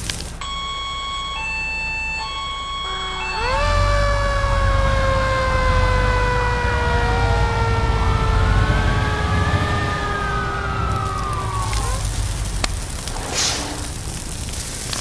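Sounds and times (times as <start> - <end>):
fire engine siren wailing: 0.4 - 14.3
low rumble: 2.9 - 14.9.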